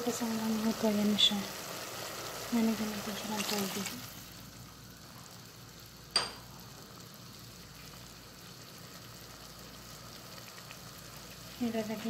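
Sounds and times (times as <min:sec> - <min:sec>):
sauce simmering in a pot: 0:00.0 - 0:12.0
sharp clink: 0:06.2 - 0:06.4.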